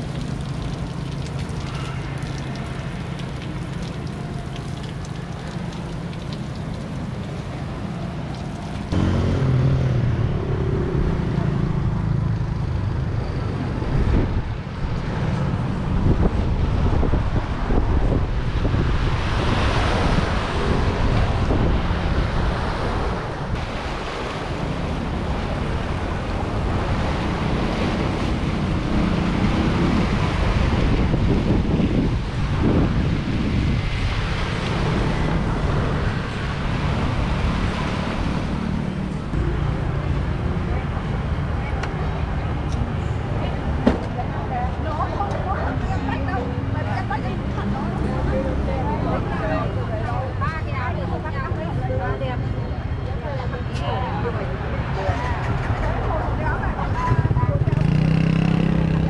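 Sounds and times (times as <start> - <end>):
wind buffeting microphone: 13.4 - 39.4
waves washing against sea wall: 16.6 - 39.4.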